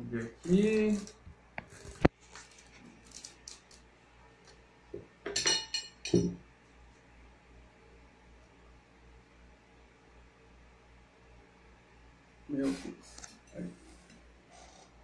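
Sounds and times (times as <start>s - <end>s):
knife clinking against plate: 5.3s - 6.3s.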